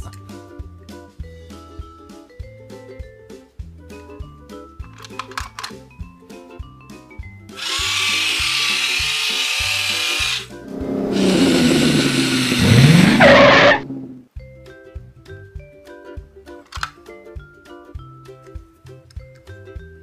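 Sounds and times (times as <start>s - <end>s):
background music with steady beat: 0.0s - 11.0s, 14.2s - 20.0s
race car engine revving: 10.6s - 14.2s.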